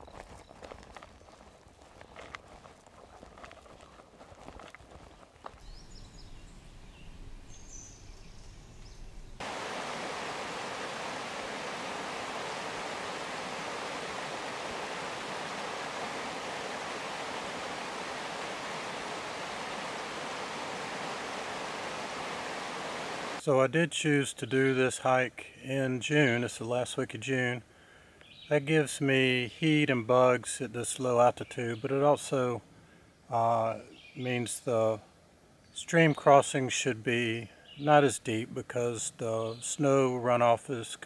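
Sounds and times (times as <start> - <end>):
footsteps on dirt trail: 0.0 - 6.4
creek rushing over rocks: 9.4 - 23.4.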